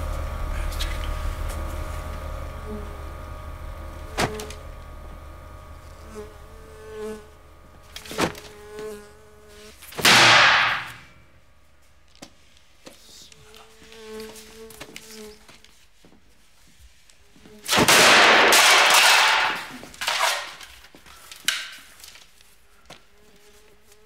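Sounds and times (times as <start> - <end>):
fly buzzing: 0.1 - 11.1, 13.5 - 15.7.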